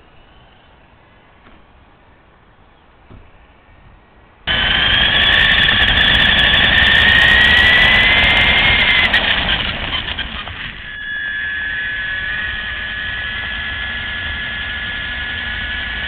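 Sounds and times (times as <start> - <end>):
toy car electric motor whining: 4.5 - 16.0.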